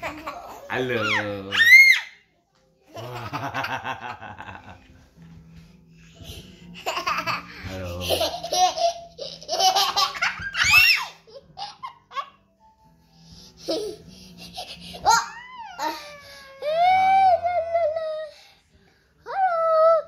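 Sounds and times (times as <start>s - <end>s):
baby laughing: 0.0s - 2.0s, 6.8s - 12.4s, 13.6s - 16.1s.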